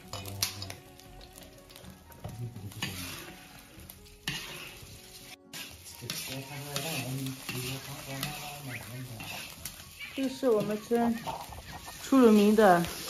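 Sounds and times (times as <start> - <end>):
egg sizzling in oil: 0.0 - 13.0
spatula scraping a wok: 2.7 - 13.0.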